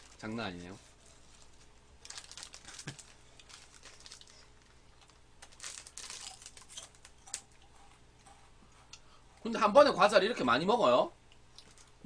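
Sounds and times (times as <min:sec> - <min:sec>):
plastic wrappers crinkling: 0:00.0 - 0:07.5, 0:11.6 - 0:12.0.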